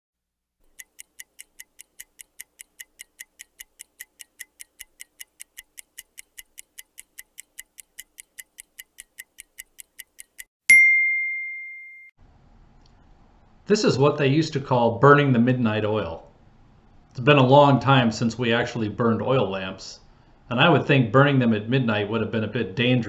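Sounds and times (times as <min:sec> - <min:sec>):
dial timer ticking: 0:00.6 - 0:10.5
timer bell ding: 0:10.7 - 0:12.1.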